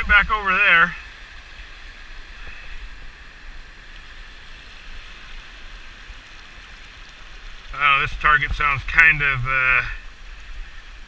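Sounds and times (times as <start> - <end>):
shallow surf washing: 0.0 - 11.0.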